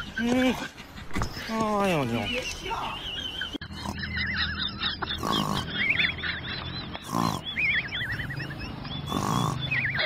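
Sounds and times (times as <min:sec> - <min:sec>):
dog grunting: 0:03.6 - 0:04.4, 0:05.0 - 0:06.0, 0:07.0 - 0:07.7, 0:09.0 - 0:10.0.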